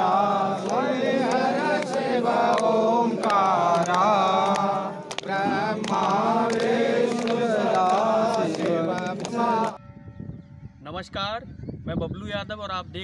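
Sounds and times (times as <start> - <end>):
mantras chanted in sing-song: 0.0 - 9.8.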